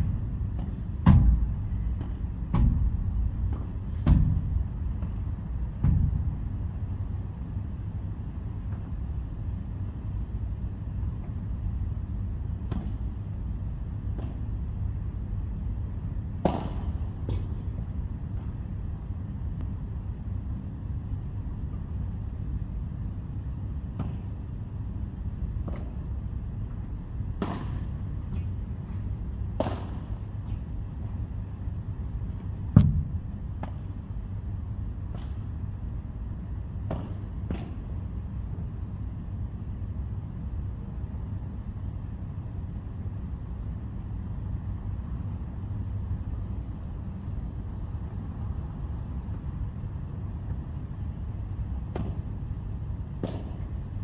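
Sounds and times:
steady low rumble: 0.0s - 41.3s
ball struck by rackets: 0.6s - 2.9s, 3.5s - 5.2s, 5.8s - 6.2s, 12.7s - 13.0s, 16.4s - 17.6s, 25.6s - 25.9s, 27.4s - 28.5s, 29.6s - 30.6s, 32.7s - 33.8s, 36.9s - 37.8s, 51.9s - 52.2s, 53.2s - 53.7s
low thud of a loud hit: 0.6s - 4.6s, 5.8s - 6.4s, 16.4s - 17.5s, 27.4s - 27.8s, 29.6s - 30.1s, 32.7s - 33.8s, 53.2s - 53.6s.

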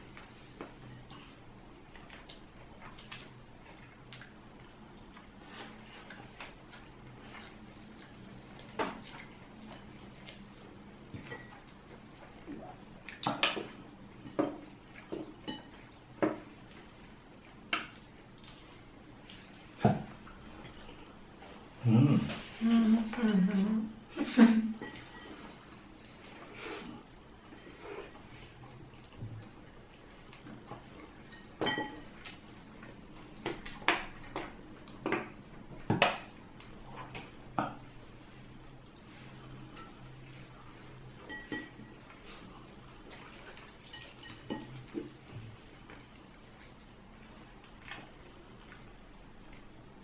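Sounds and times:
cutlery clinking on plates: 13.2s - 16.5s, 31.1s - 32.3s, 41.2s - 42.0s.

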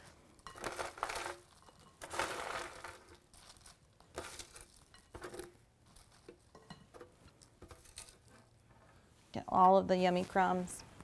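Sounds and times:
crumbs scraping off metal sheet: 0.0s - 10.7s
bread cubes tumbling into bowl: 0.4s - 8.6s.

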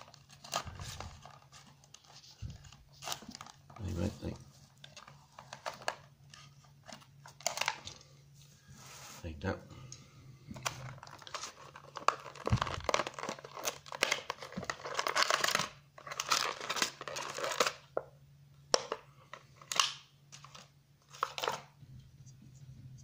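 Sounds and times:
plastic blister pack crinkling: 0.0s - 8.1s, 10.6s - 18.0s.

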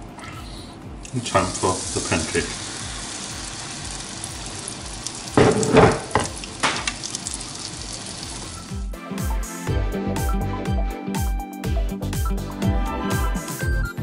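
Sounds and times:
batter sizzling in a pan: 1.3s - 8.8s.

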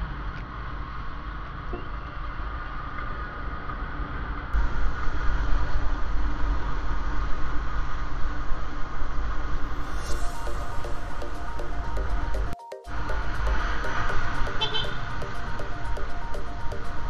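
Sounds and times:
wind rumble on microphone: 4.6s - 10.2s.

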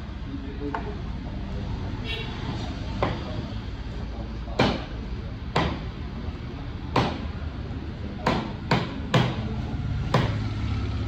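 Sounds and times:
knife chopping on wooden block: 8.2s - 9.4s, 10.1s - 10.4s.

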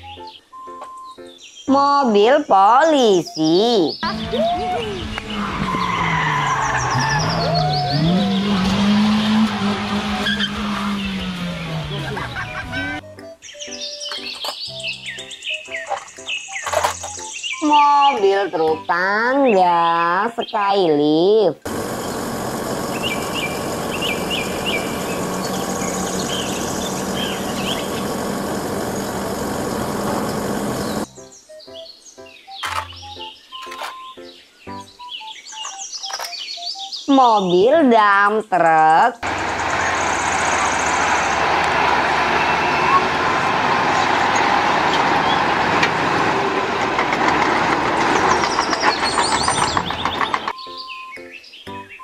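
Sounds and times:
small birds chirping: 0.0s - 8.6s, 13.2s - 21.0s, 21.6s - 38.6s, 48.0s - 52.0s
tyres squealing: 4.0s - 13.0s, 21.7s - 31.1s, 39.2s - 50.6s
car engine at high revs: 5.0s - 13.0s, 21.7s - 31.1s, 39.2s - 50.5s
hydraulic boom raising: 21.7s - 31.1s.

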